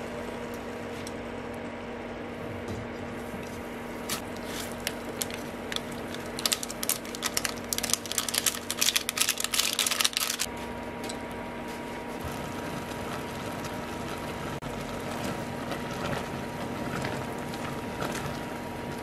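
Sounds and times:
sachet crinkling: 4.3s - 10.5s
dried flakes ticking into a pot: 4.8s - 10.5s.

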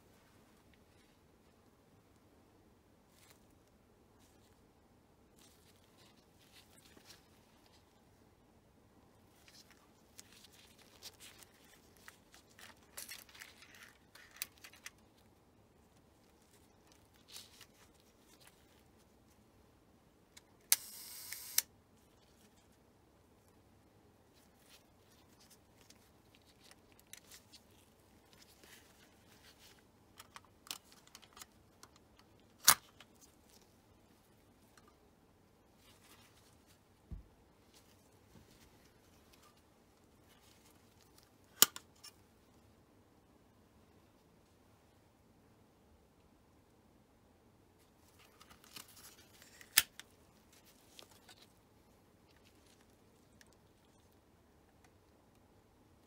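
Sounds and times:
small camera clicks: 20.7s - 21.7s.

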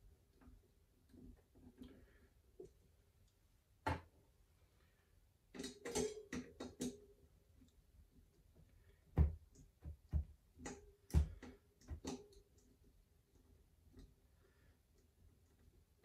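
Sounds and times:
metallic clicks and knocks of tools: 5.5s - 7.1s.

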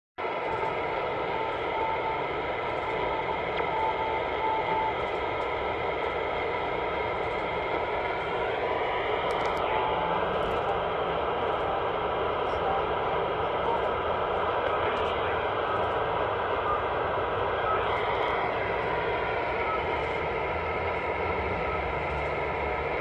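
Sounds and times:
radio static hiss: 0.2s - 23.0s
short radio beeps: 14.8s - 22.6s
faint rising whistle: 16.5s - 22.8s.

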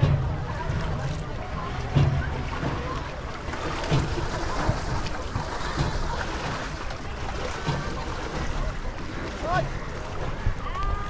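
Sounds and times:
faint voices: 0.0s - 11.0s.

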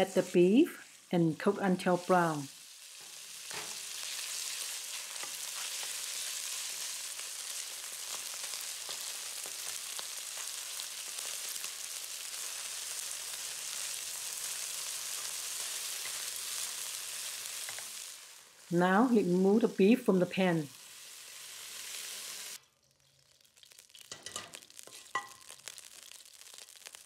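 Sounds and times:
meat sizzling in oil: 0.0s - 27.0s.

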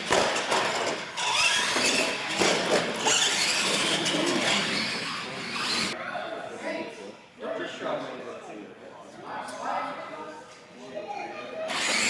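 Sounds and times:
tire noise on concrete: 0.0s - 6.0s
toy truck motor whining: 0.7s - 6.0s, 11.7s - 12.0s.

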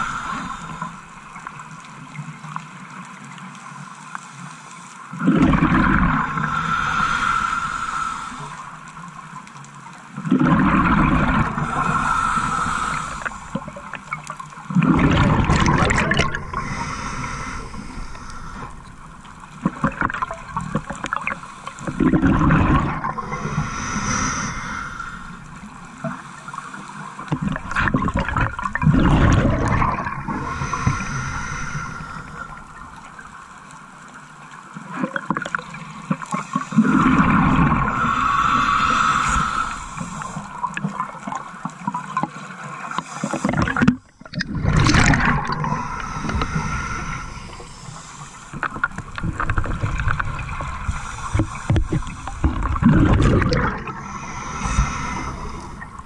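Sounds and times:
diver breathing through regulator: 0.0s - 1.4s, 6.1s - 9.0s, 10.7s - 14.2s, 15.0s - 27.0s, 29.2s - 33.6s, 36.5s - 41.3s, 44.6s - 56.0s
gurgling exhaled bubbles underwater: 5.2s - 9.4s, 10.2s - 26.2s, 27.2s - 56.0s.

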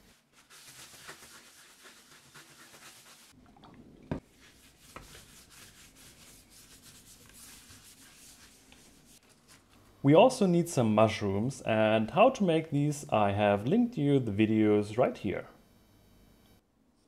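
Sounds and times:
scratchy rubbing on leather: 0.0s - 3.3s, 4.3s - 9.6s.

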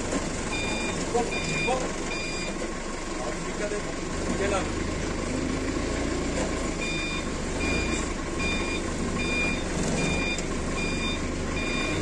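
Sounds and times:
forklift engine humming: 0.0s - 12.0s
forklift reversing alarm beeping: 0.4s - 3.0s, 6.5s - 12.0s.

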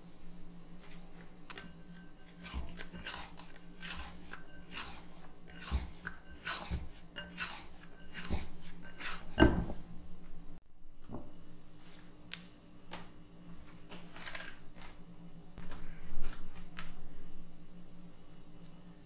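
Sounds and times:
scraper scraping glass bowl: 0.9s - 9.8s.

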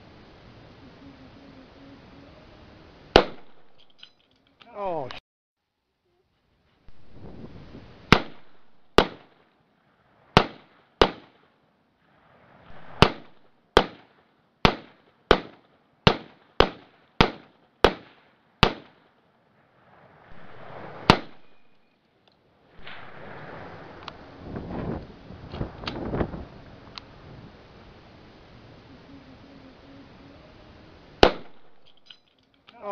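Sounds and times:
rifle shots echoing: 3.1s - 3.9s, 8.1s - 9.4s, 10.4s - 11.5s, 12.7s - 19.2s, 20.3s - 21.9s, 22.8s - 24.0s, 31.2s - 32.1s
rushing noise: 19.6s - 21.8s, 22.7s - 31.2s.

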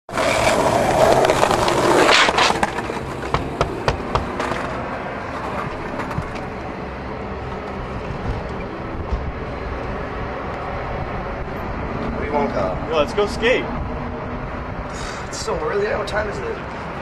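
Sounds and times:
skateboard clacks: 0.1s - 6.7s
skateboard wheels rolling on concrete: 0.1s - 13.5s.

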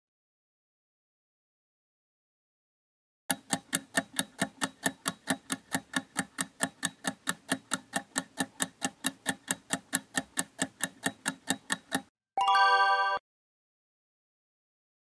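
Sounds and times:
clock ticking: 3.3s - 12.1s.

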